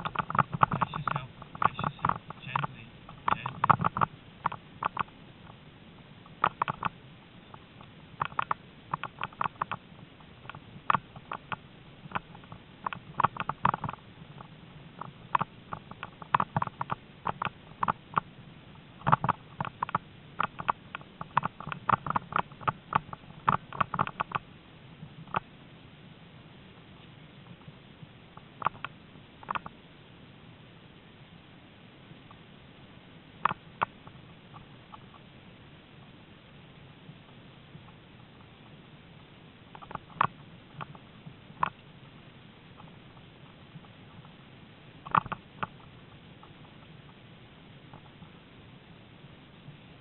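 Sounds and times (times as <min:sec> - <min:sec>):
training rig clattering over grass: 0:00.0 - 0:05.1
low steady hiss: 0:00.0 - 0:50.0.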